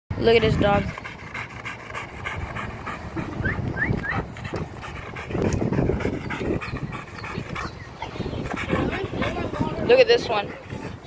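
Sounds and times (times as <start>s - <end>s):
dog panting hard: 0.2s - 11.0s.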